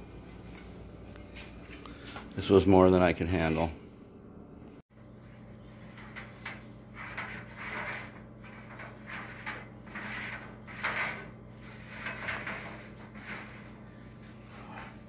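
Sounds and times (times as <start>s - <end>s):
steady low hum: 0.0s - 15.0s
metal drum scraping and rubbing: 5.8s - 15.0s.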